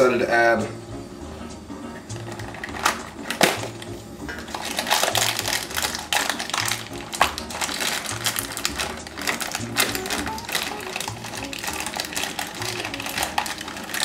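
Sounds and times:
background music with low beat: 0:00.0 - 0:14.0
cereal box packaging tearing: 0:04.4 - 0:14.0.

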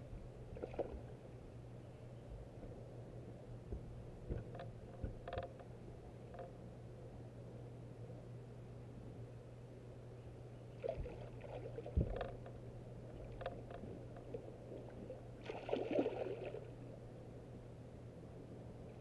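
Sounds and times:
steady low hum: 0:00.0 - 0:19.0
knocks and rattles on boat: 0:03.6 - 0:05.7, 0:11.9 - 0:12.6
water splashing: 0:14.7 - 0:16.7.

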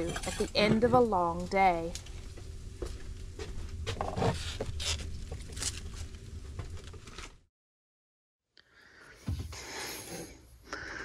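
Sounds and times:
vegetables and bowls handled: 0:00.0 - 0:01.5.

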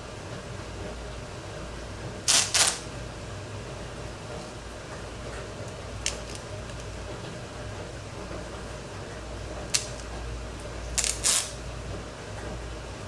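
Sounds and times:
low room hum: 0:00.0 - 0:13.0
tape ripping: 0:02.3 - 0:02.9, 0:09.7 - 0:10.1, 0:11.0 - 0:11.6.

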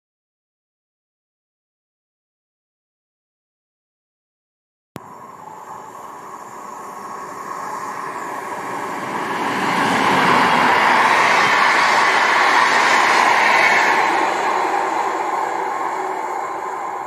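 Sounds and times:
train rolling past on rails: 0:05.0 - 0:17.0.

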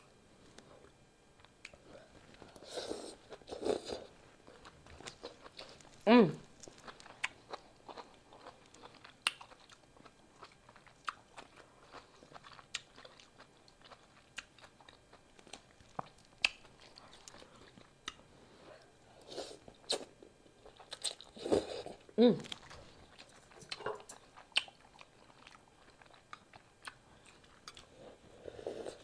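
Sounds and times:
chewing noodles: 0:06.6 - 0:18.2, 0:19.2 - 0:29.0.

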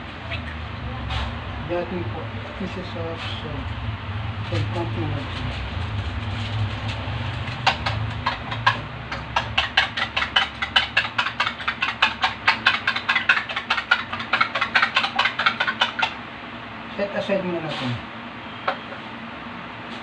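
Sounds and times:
metal spoon beating eggs on plate: 0:07.3 - 0:16.2.

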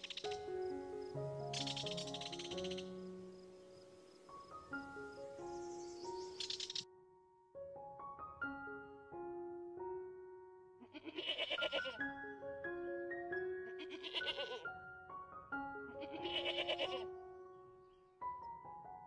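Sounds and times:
gentle piano music: 0:00.0 - 0:19.0
goat bleating: 0:10.8 - 0:12.0, 0:13.8 - 0:14.6, 0:16.0 - 0:17.0.

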